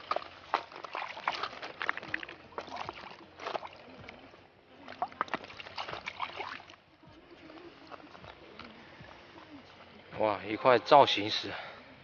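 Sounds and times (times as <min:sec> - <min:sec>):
hand splashing in shallow water: 0:00.0 - 0:04.2.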